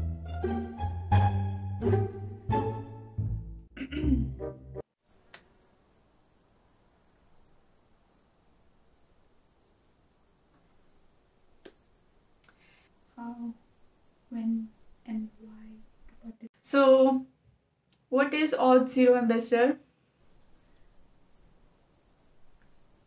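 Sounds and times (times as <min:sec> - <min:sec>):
crickets chirping: 0:05.0 - 0:16.5, 0:20.2 - 0:23.0
faint clicks: 0:05.1 - 0:05.6, 0:11.6 - 0:13.2, 0:22.5 - 0:23.0.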